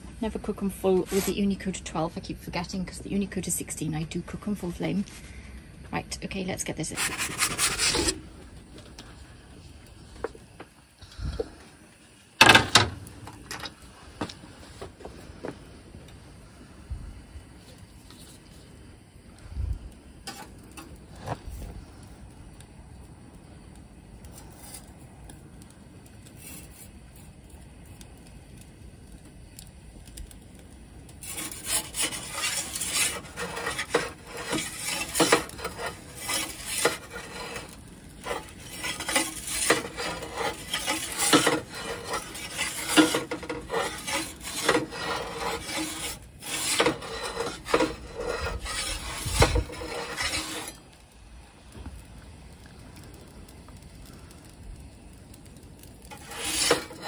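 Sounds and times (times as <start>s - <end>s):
metal peel scraping stone: 6.8s - 8.3s, 20.2s - 21.4s, 31.2s - 50.8s, 56.0s - 57.0s.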